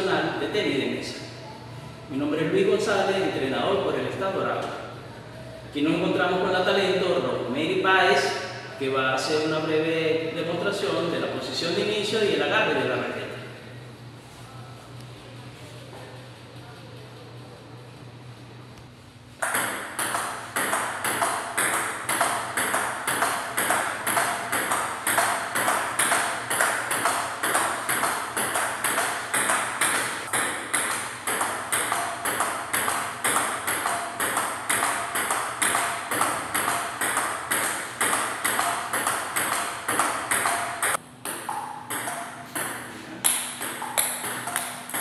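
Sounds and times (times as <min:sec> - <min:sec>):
ball bouncing on table: 0:19.4 - 0:45.0
ping-pong ball hitting paddles: 0:19.4 - 0:45.0.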